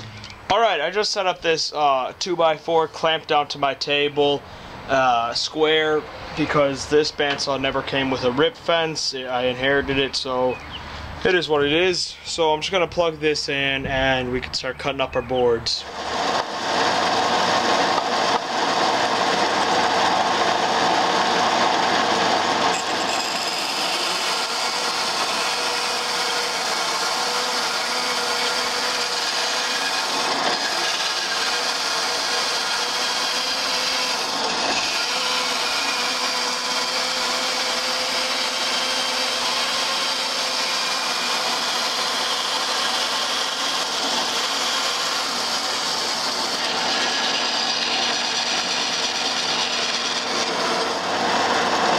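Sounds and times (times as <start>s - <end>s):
bandsaw cutting log: 15.7s - 51.9s.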